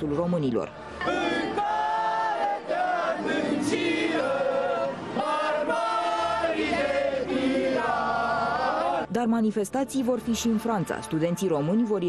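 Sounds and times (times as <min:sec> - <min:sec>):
crowd chanting: 0:01.0 - 0:09.1.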